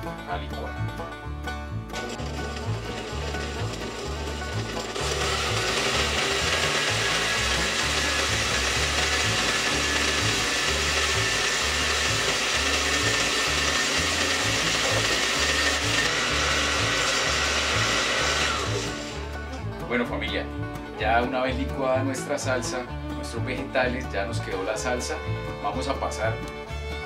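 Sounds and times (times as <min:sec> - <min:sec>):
blender running: 0:01.9 - 0:19.6.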